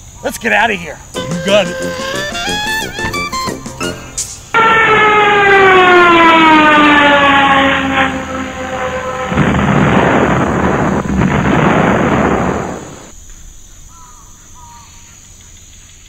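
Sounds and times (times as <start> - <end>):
crickets chirping: 0.0 - 4.6, 7.8 - 16.0
descending falling whistle: 1.2 - 10.3
rumbling explosion crash: 4.6 - 13.1.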